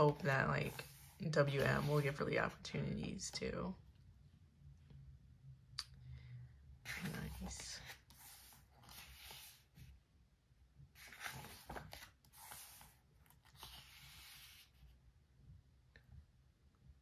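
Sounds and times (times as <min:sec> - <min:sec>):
pages rustling: 0:00.0 - 0:02.2, 0:06.9 - 0:10.0, 0:10.9 - 0:14.8.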